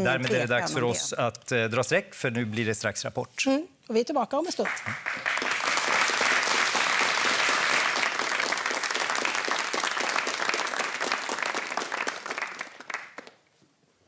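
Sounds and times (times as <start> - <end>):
audience applauding: 4.6 - 13.5.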